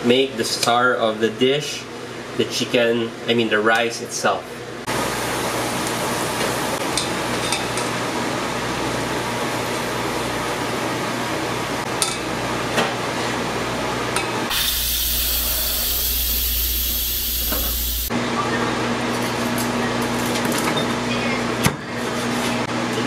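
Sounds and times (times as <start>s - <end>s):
appliance humming: 4.5s - 19.0s.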